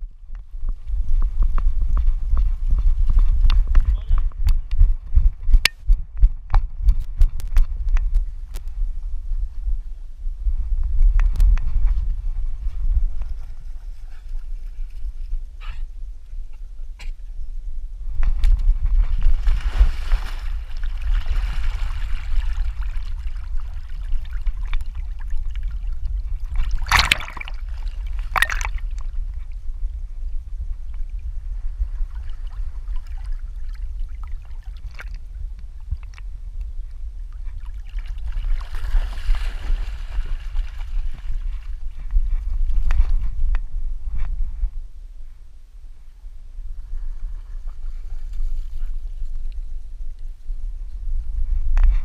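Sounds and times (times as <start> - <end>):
steady low rumble: 0.0 - 52.0
water sloshing and splashing: 19.1 - 29.1, 37.5 - 41.7
loud short splashes: 26.6 - 28.8.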